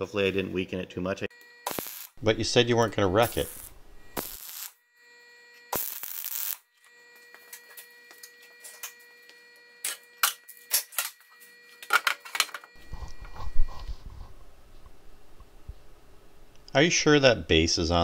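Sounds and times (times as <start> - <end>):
welding arc hiss: 1.6 - 2.4, 3.2 - 4.8, 5.7 - 6.6.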